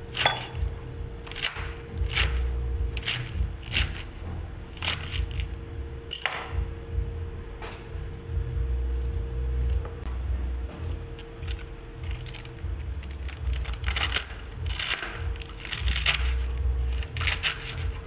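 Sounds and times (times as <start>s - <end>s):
knife cutting cabbage: 0.0s - 4.2s, 4.8s - 6.5s, 11.2s - 18.0s
low rumble: 1.9s - 18.0s.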